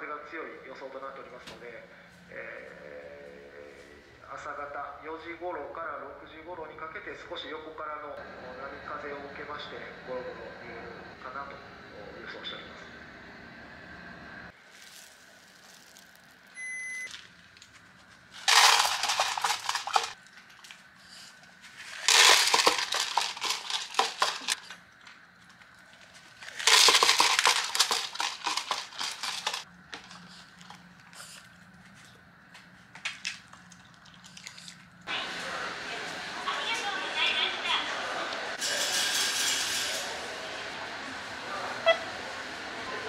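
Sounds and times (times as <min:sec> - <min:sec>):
dog crunching dry food: 0:17.1 - 0:32.2, 0:32.9 - 0:34.8.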